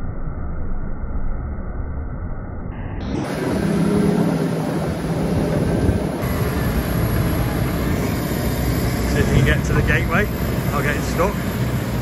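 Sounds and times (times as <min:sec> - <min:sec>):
low engine hum: 0:00.0 - 0:12.0
machinery noise: 0:02.8 - 0:12.0.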